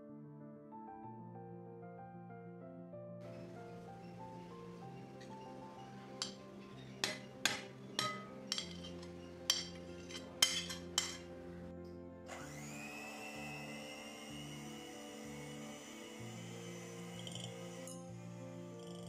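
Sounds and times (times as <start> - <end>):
background music: 0.0 - 19.0
electric hand mixer whining: 3.3 - 9.3, 12.3 - 19.0
spatula clinking glass bowl: 5.2 - 11.3.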